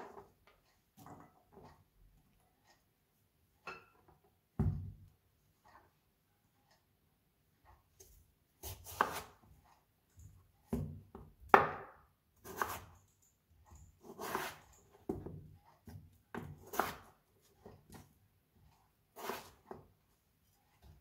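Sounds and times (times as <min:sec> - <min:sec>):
knife slicing potato on cutting board: 0:08.6 - 0:09.5, 0:12.4 - 0:13.0, 0:14.0 - 0:18.1, 0:19.1 - 0:19.9.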